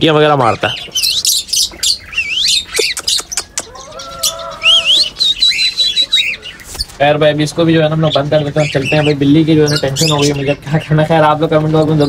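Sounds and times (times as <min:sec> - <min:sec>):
cage birds chirping: 0:00.0 - 0:12.0
low bird call: 0:00.8 - 0:06.9.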